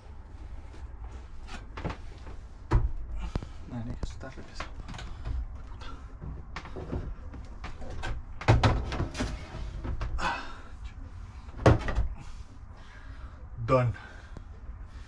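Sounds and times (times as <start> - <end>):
hard objects knocking and clunking: 4.4 - 10.2, 11.5 - 12.2.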